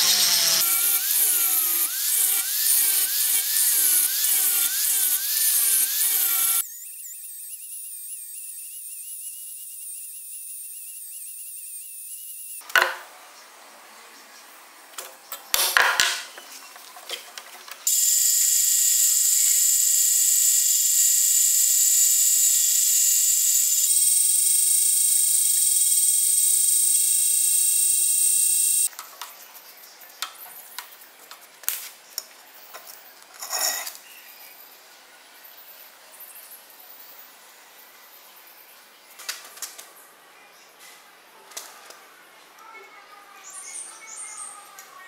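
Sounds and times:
steel parts clinking and scraping: 0:33.3 - 0:34.1.

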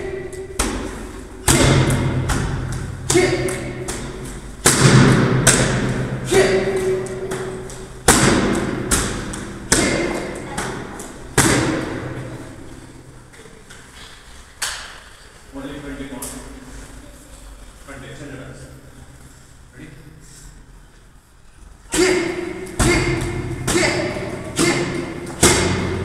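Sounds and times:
kicks and punches hitting mitts: 0:00.6 - 0:12.1, 0:22.0 - 0:26.0.

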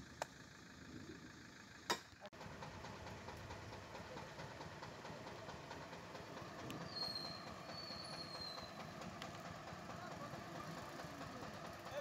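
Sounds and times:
vehicle engine idling: 0:00.0 - 0:12.0
street noise: 0:01.3 - 0:12.0
thin high squeal: 0:06.8 - 0:08.7.

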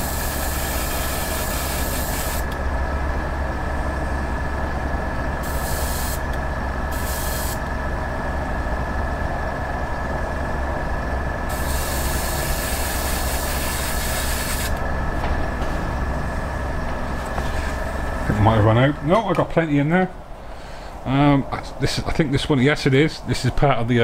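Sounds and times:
steady motor hum: 0:00.0 - 0:24.0
airbrush spraying hiss: 0:05.4 - 0:06.2, 0:06.9 - 0:07.6, 0:11.5 - 0:14.8.

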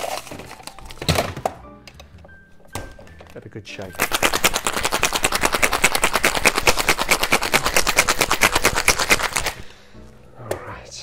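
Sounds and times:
ice rattling in cocktail shaker: 0:03.8 - 0:09.6.

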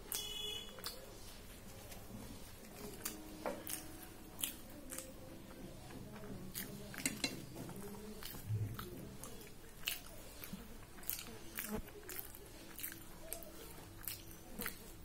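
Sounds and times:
chewing: 0:00.0 - 0:15.0
scooping food against steel plate: 0:05.9 - 0:08.5.

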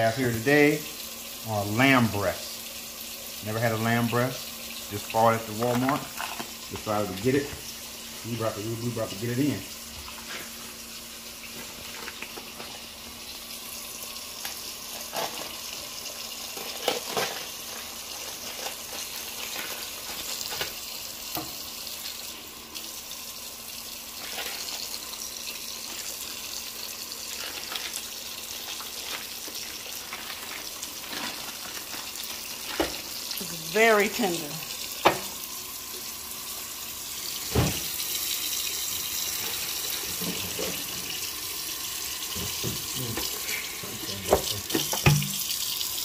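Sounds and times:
plastic packaging crinkling: 0:27.4 - 0:33.2
tap running into steel sink: 0:35.0 - 0:35.3, 0:44.3 - 0:45.5.

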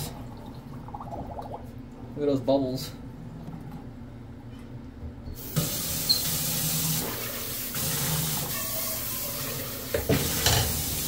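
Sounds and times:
faucet turned on: 0:05.4 - 0:11.0
water running into pot: 0:05.5 - 0:11.0.

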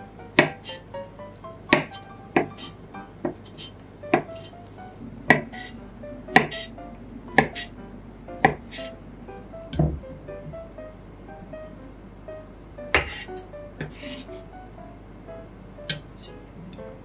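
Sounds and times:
background music: 0:00.0 - 0:17.0
knife chopping on wooden board: 0:00.4 - 0:00.8, 0:01.7 - 0:04.5, 0:05.3 - 0:06.7, 0:07.4 - 0:07.7, 0:08.4 - 0:08.9, 0:13.0 - 0:14.2.

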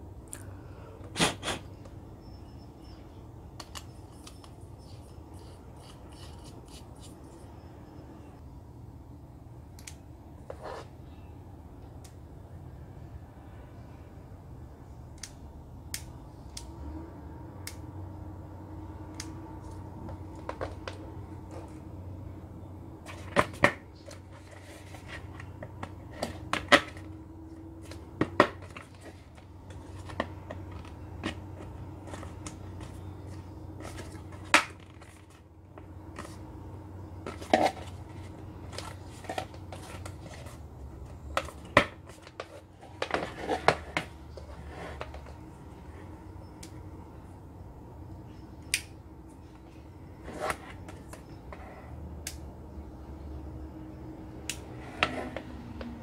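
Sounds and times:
faint steady hum: 0:00.0 - 0:56.0.

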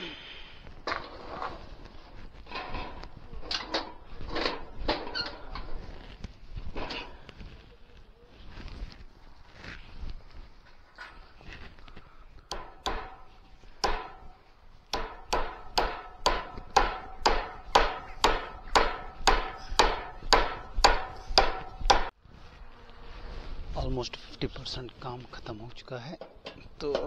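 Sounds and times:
hammer striking metal roof sheet: 0:12.5 - 0:22.1.

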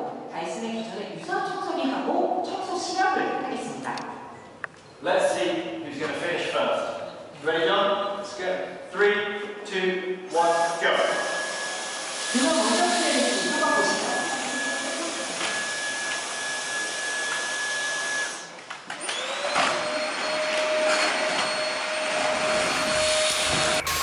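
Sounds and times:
vacuum cleaner motor whine: 0:10.4 - 0:24.0.

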